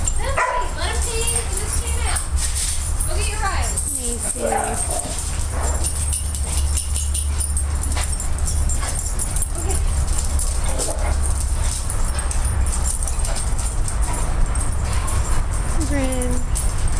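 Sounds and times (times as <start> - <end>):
dogs playing: 0.0 - 16.9
steady low rumble: 0.0 - 16.9
faint dog vocalizations: 3.9 - 5.5.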